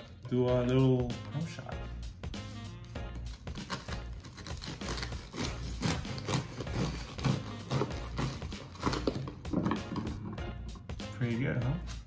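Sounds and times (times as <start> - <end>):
bread knife sawing crust: 3.3 - 9.2.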